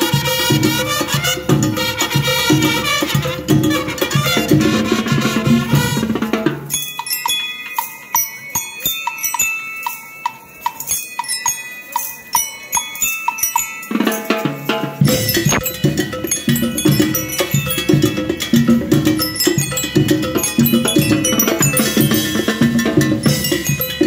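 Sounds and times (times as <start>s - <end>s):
rhythm band playing: 0.0s - 6.9s, 13.9s - 24.0s
drums: 0.0s - 24.0s
bell lyre melody: 6.6s - 24.0s.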